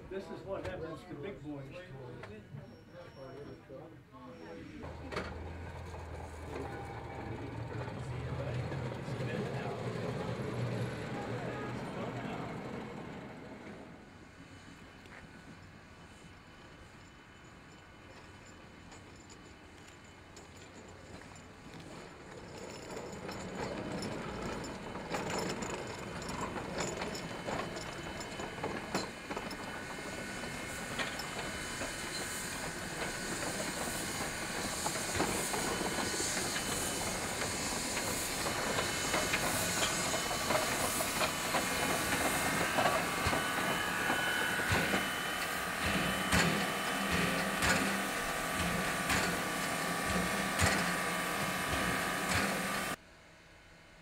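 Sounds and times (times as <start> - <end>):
steam locomotive hissing: 2.5 - 53.0
wheels clicking on rails: 4.8 - 14.0, 17.0 - 53.0.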